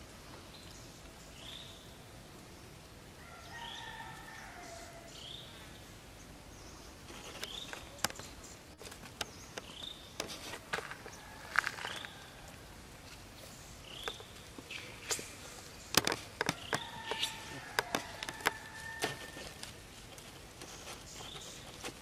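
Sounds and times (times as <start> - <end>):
clicks and crackles of dry leaves: 6.9 - 22.0.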